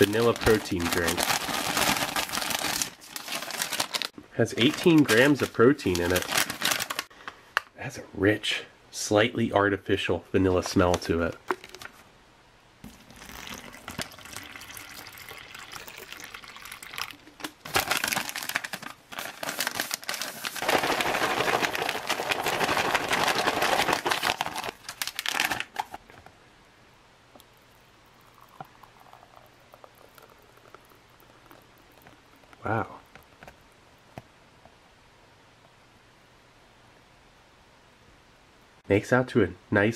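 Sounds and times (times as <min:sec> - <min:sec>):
foil pouch crinkling: 0:00.0 - 0:07.1, 0:10.7 - 0:12.0, 0:13.2 - 0:26.1
drink pouring into glass: 0:12.8 - 0:17.6, 0:27.4 - 0:32.7
liquid sloshing: 0:12.8 - 0:17.8
water pouring from bottle: 0:12.8 - 0:18.0, 0:27.4 - 0:32.7.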